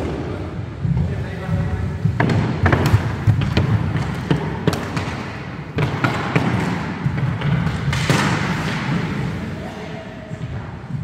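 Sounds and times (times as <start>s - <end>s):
hockey sticks clacking: 2.1s - 10.6s.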